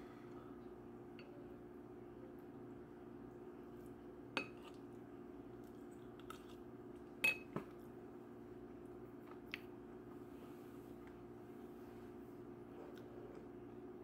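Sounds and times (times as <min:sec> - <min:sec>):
spoon clinking against bowl: 0:07.2 - 0:07.5.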